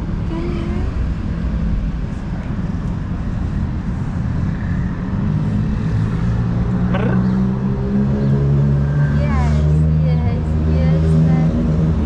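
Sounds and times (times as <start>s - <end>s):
street traffic rumble: 0.0s - 12.0s
vehicle engine running: 2.0s - 7.8s.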